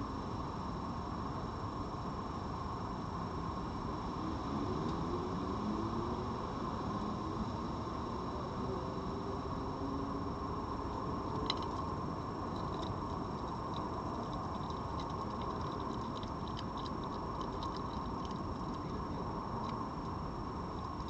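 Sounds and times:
fox crunching dry kibble: 11.2 - 21.0.

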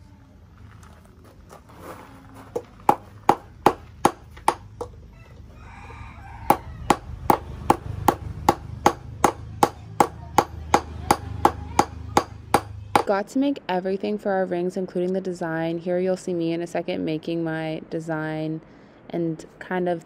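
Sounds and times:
hammer beating metal ring: 6.9 - 13.1.

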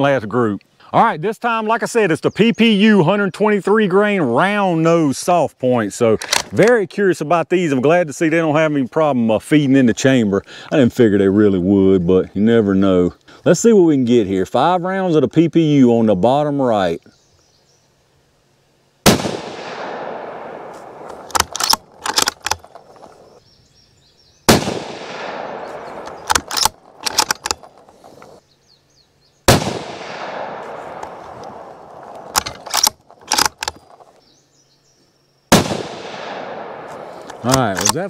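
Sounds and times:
rifle bolt metallic clicks: 6.2 - 6.8, 19.5 - 23.2, 25.0 - 27.8, 29.6 - 34.0, 36.1 - 38.0
rifle shots echoing: 19.0 - 22.9, 24.5 - 27.8, 29.5 - 33.6, 35.5 - 38.0.

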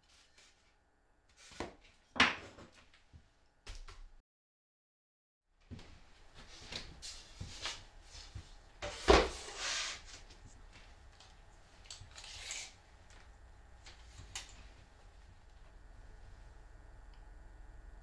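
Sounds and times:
plywood sliding on cutting mat: 8.8 - 10.3.

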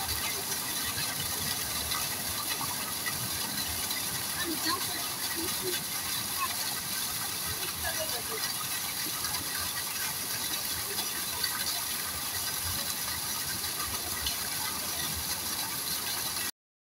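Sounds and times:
pond water noise: 0.0 - 16.5.

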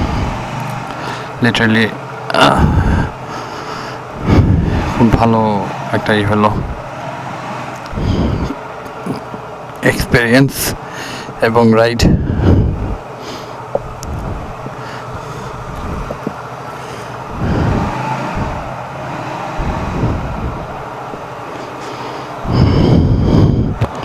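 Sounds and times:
road traffic passing: 0.0 - 24.0.

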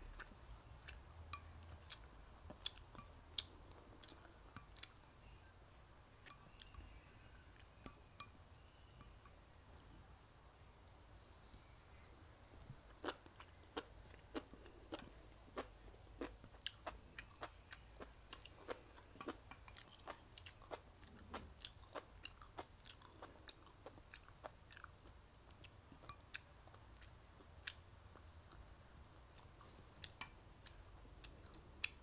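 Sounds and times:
chewing and crunching food: 0.0 - 5.0, 12.6 - 32.0.

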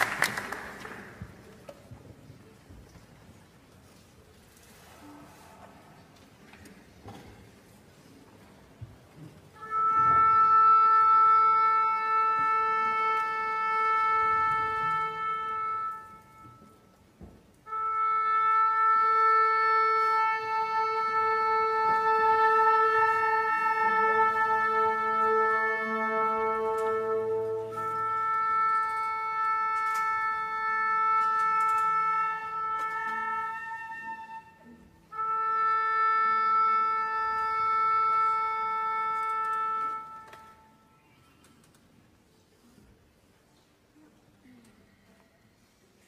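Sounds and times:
orchestra tuning: 9.4 - 41.5
sustained wind instrument note: 9.6 - 16.9.

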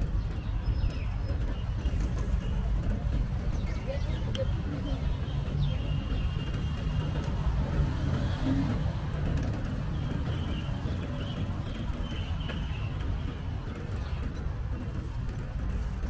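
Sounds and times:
wind and road noise: 0.0 - 16.0.

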